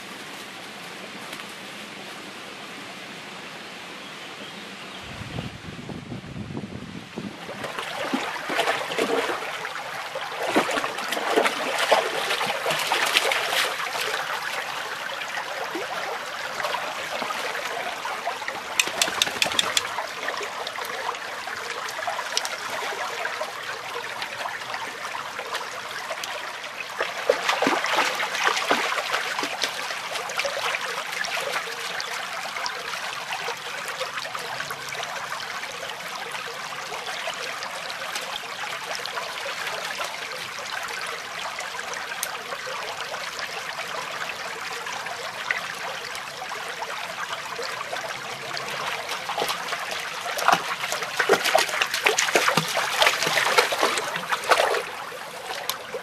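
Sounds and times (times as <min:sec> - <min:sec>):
stream trickling: 0:07.2 - 0:56.0
dog splashing through water: 0:07.6 - 0:09.6, 0:10.4 - 0:14.1, 0:27.1 - 0:29.8, 0:48.8 - 0:55.8
quick sharp clicks: 0:18.8 - 0:19.9.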